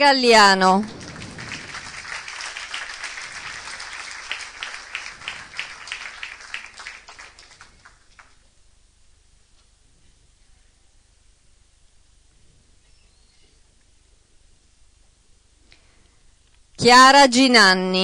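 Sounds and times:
audience applauding: 0:00.8 - 0:08.4.

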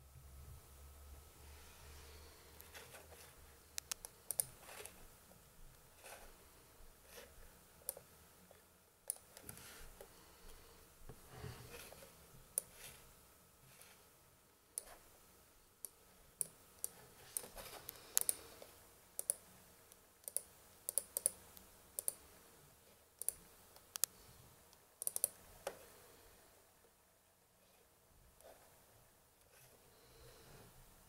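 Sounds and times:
laptop pointer buttons clicking: 0:25.0 - 0:25.4.

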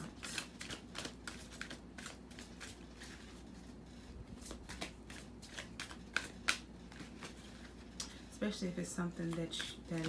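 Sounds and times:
cards clicking and rustling: 0:00.0 - 0:03.3, 0:04.4 - 0:08.2, 0:09.2 - 0:10.0.

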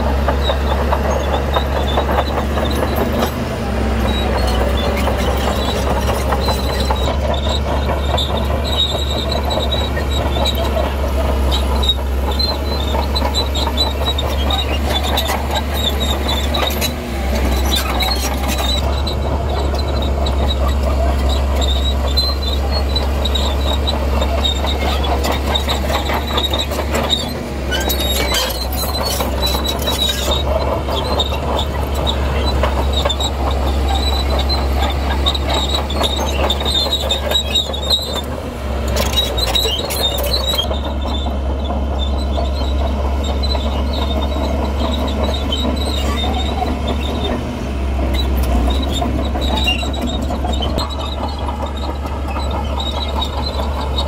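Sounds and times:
diesel engine rumbling: 0:00.0 - 0:54.0
steel tracks clanking: 0:00.0 - 0:54.0
high metallic squeal: 0:11.5 - 0:38.3, 0:38.9 - 0:41.2, 0:48.0 - 0:54.0.

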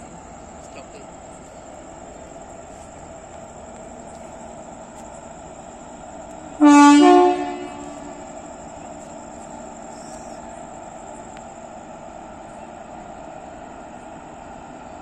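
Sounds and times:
standing train hum: 0:00.0 - 0:15.0
locomotive air horn blast: 0:06.6 - 0:08.3.

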